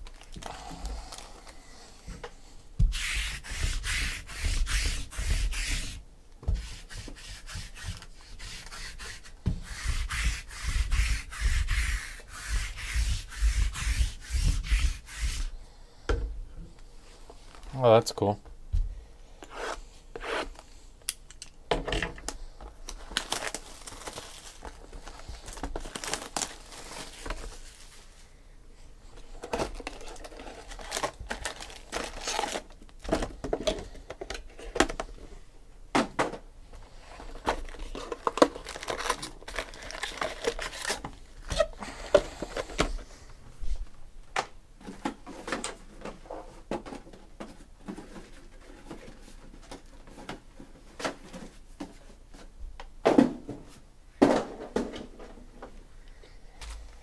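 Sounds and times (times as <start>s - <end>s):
cardboard and foil crinkling: 0.0s - 1.6s, 22.8s - 28.1s, 29.3s - 33.1s, 37.2s - 41.1s.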